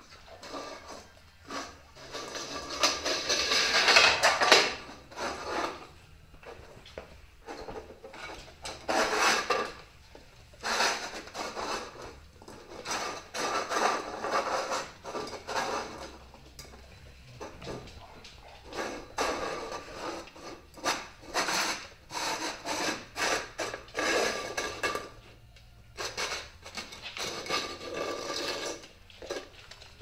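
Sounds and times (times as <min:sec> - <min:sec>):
food bowl clattering: 0:00.0 - 0:06.0
puppies scrabbling on wooden floor: 0:15.4 - 0:20.4.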